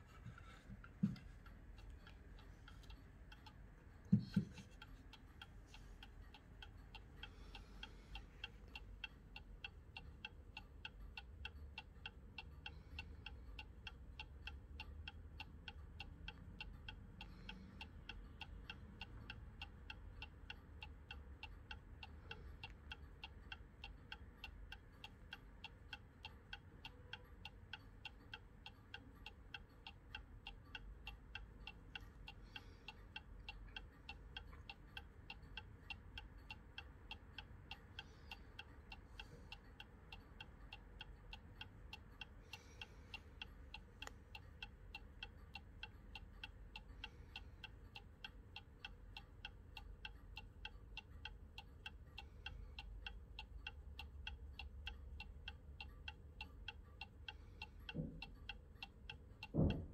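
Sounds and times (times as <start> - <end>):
clock ticking: 0.0 - 59.9.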